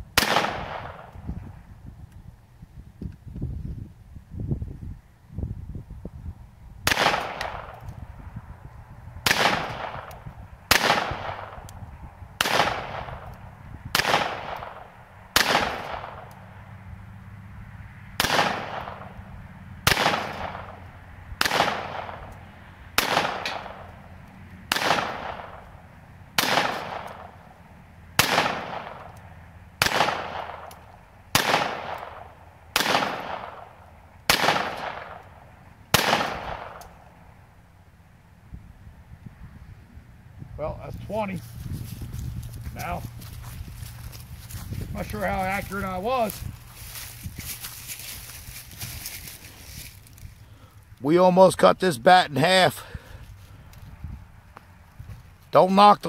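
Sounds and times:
pistol firing single shots: 0.1 - 1.1, 6.8 - 7.9, 9.2 - 11.7, 12.4 - 16.3, 18.2 - 19.2, 19.8 - 20.8, 21.4 - 24.0, 24.7 - 25.7, 26.4 - 27.4, 28.1 - 29.2, 29.8 - 37.0.

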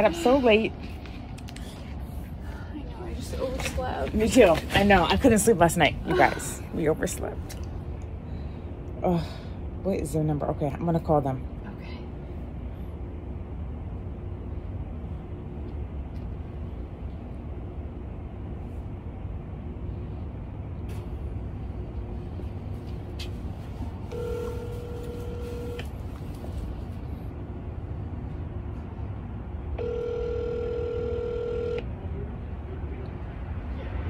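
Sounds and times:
telephone ringback tone: 24.1 - 25.9, 29.8 - 31.8.

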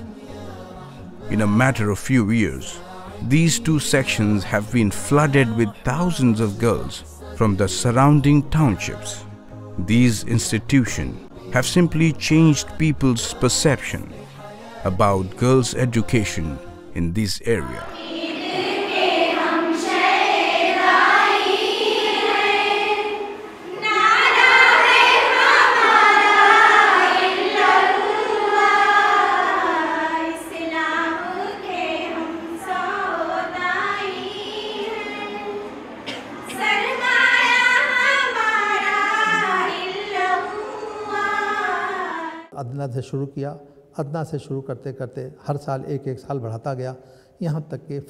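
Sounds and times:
girls singing in unison: 17.5 - 42.5.

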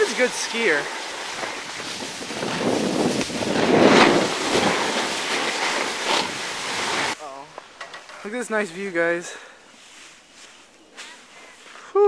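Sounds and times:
sliding over packed snow: 0.0 - 7.2
wind rushing over microphone: 0.0 - 7.2.

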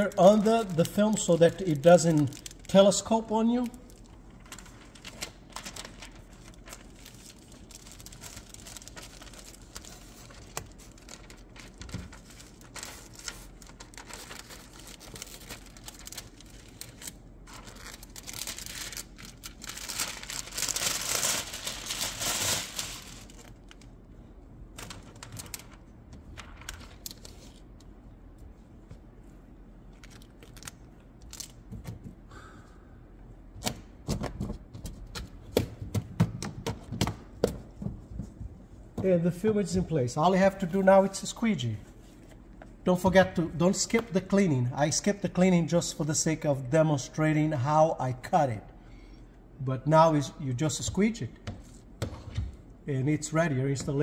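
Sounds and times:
plastic film crinkling and rustling: 0.0 - 24.0, 24.8 - 27.7, 29.9 - 31.6.

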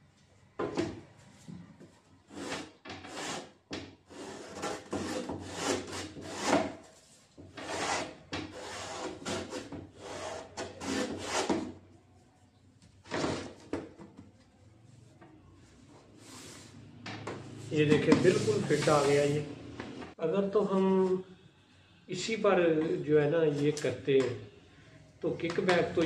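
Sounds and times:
wood rubbing on wood: 7.4 - 11.6.

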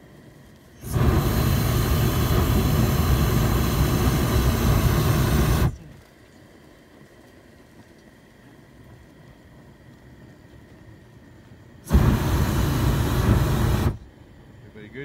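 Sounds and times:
propane burner firing: 0.8 - 5.9, 11.8 - 14.1.

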